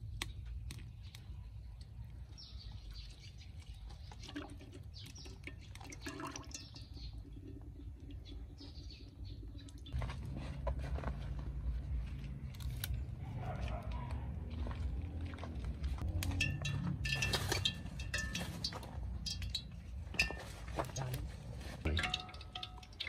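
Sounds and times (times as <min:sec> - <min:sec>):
small bird chirping: 0:06.5 - 0:10.0.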